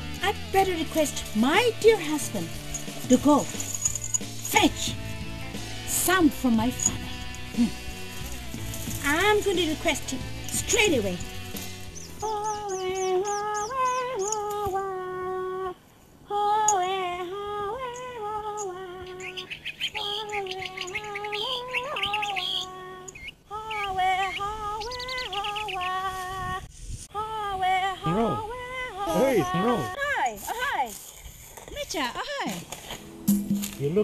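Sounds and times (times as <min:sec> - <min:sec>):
woman singing unaccompanied: 0:00.0 - 0:03.8, 0:04.4 - 0:05.0, 0:05.8 - 0:30.9
birds chirping: 0:00.3 - 0:14.6, 0:17.9 - 0:26.1, 0:29.1 - 0:30.0.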